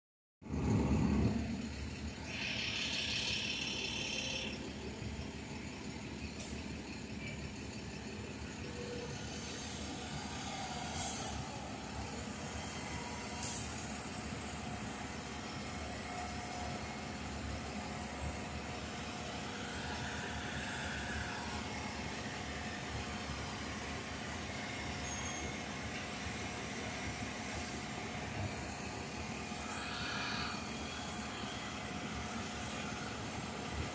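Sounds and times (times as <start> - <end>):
rail machines rumbling: 0.4 - 33.9
hiss: 1.7 - 4.7, 8.7 - 16.6, 24.8 - 33.9.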